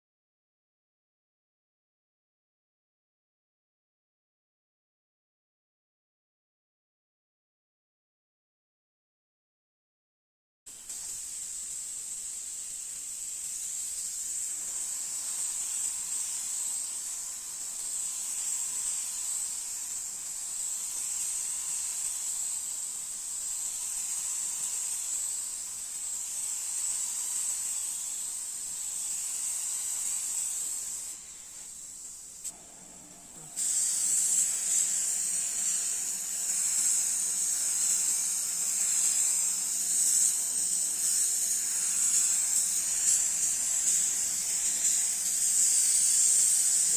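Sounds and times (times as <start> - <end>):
spray gun hissing: 10.7 - 46.9.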